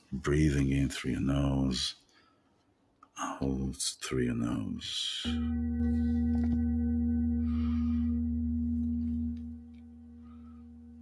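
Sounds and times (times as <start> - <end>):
deep hum: 5.2 - 11.0
ringing tone with overtones: 5.2 - 11.0.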